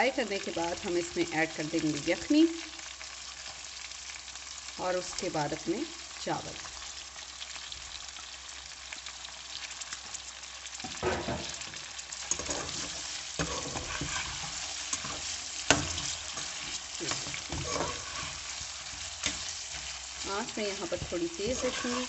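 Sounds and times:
meat sizzling in hot oil: 0:00.0 - 0:22.0
spatula scraping metal pan: 0:10.9 - 0:22.0.

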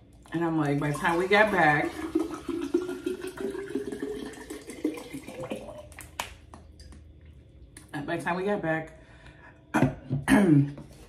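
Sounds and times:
water pouring into a bottle: 0:00.0 - 0:07.0.

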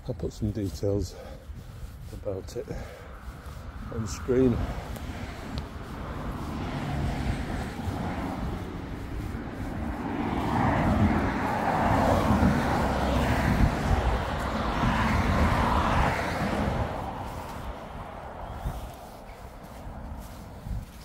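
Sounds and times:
vehicles passing close by: 0:00.0 - 0:21.0.

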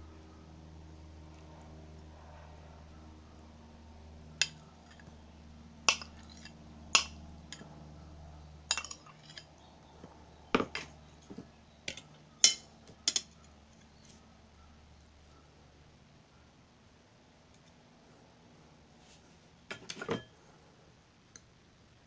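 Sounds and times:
spoon clinking on ceramic bowl: 0:08.7 - 0:09.4.

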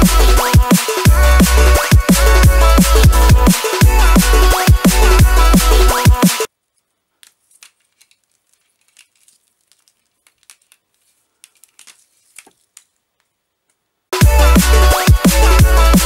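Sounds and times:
drum and bass music: 0:00.0 - 0:06.5, 0:14.2 - 0:16.0
cable rustling and clicking: 0:06.6 - 0:13.8.

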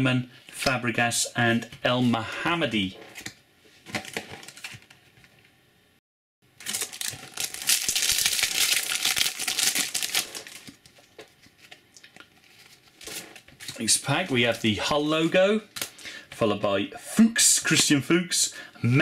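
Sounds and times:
foil pack crinkling: 0:06.6 - 0:14.7.

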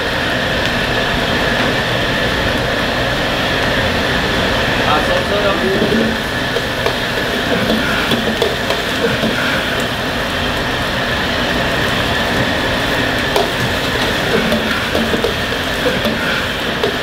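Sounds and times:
gas burner roaring: 0:00.0 - 0:17.0
vegetables sizzling in a wok: 0:04.8 - 0:17.0
ladle stirring in a wok: 0:05.5 - 0:10.6, 0:11.4 - 0:17.0.

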